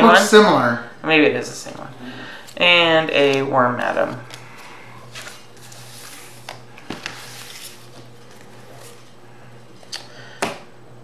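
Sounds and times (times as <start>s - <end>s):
cards sliding and shuffling: 4.2s - 10.6s.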